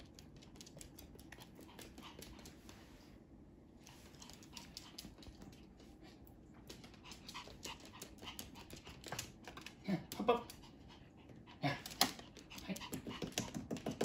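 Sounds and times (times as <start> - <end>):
dog claws clicking on wood floor: 0.0 - 2.6, 6.6 - 10.6, 11.9 - 14.0
low room hum: 0.0 - 14.0.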